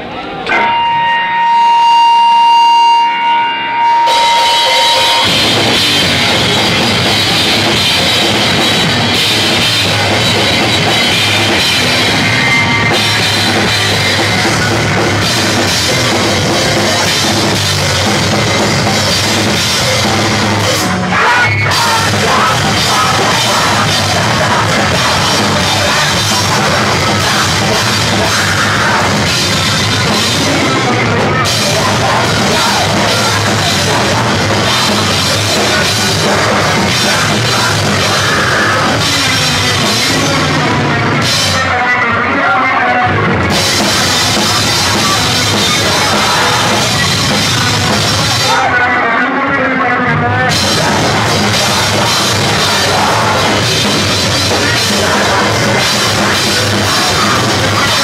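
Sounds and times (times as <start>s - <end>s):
hardcore band playing loud: 0.0s - 58.0s
held high tone: 0.1s - 40.0s.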